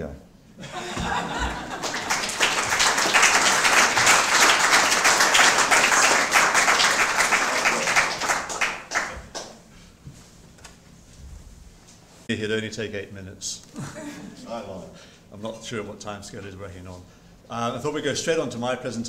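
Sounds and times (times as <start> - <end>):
audience applauding: 0.8 - 9.6.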